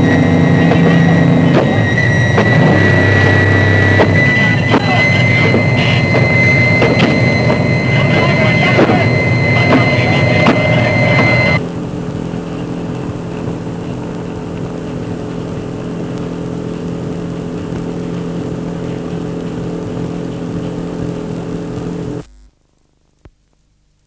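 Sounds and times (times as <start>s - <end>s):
boat engine droning: 0.0s - 22.2s.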